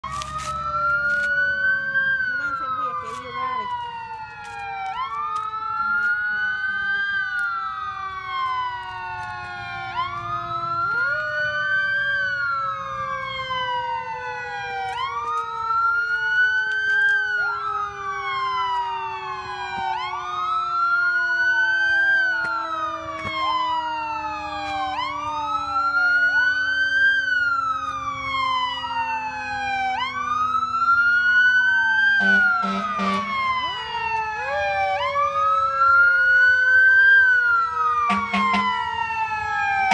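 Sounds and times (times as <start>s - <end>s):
fire truck sirens wailing: 0.0s - 39.9s
low siren winding down: 0.0s - 39.9s
short horn blasts: 32.2s - 33.3s.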